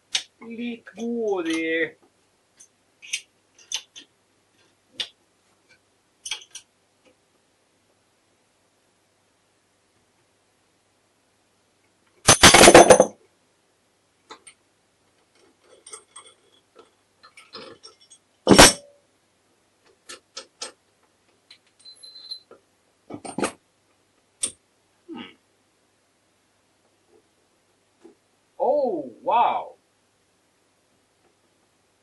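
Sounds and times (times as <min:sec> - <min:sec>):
metal parts and tools clinking: 0:02.6 - 0:05.1, 0:06.2 - 0:06.7, 0:12.3 - 0:13.2, 0:15.2 - 0:18.9, 0:21.8 - 0:22.6.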